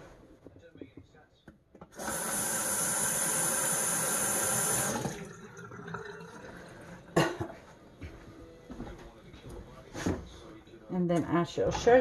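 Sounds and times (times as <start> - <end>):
faucet running water: 1.9 - 7.2.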